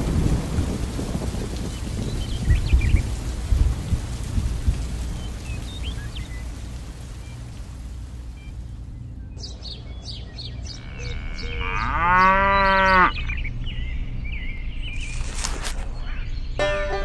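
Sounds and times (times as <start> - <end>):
rain hissing: 0.0 - 12.2, 12.8 - 17.0
bird chirping: 8.4 - 17.0
cow mooing: 10.8 - 13.4.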